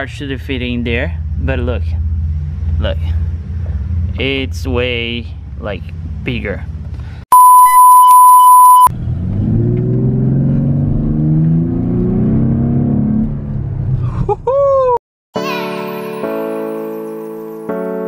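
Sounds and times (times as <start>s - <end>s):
censor bleep tone: 7.3s - 8.9s
truck engine revving: 8.9s - 14.0s.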